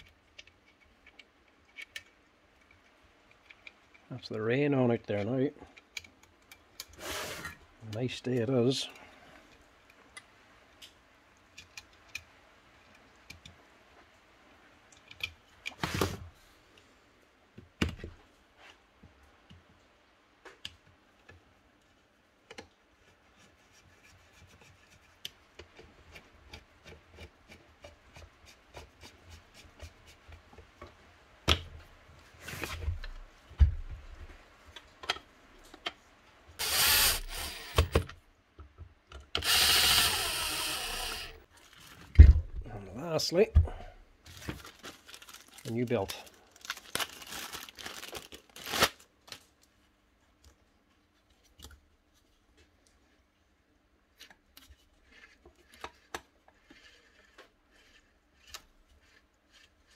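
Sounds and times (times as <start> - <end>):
parts knocking down: 36.6 - 38.1, 39.4 - 41.4
screwdriver clicks and ticks: 36.6 - 38.1
scraping rub: 54.8 - 59.9.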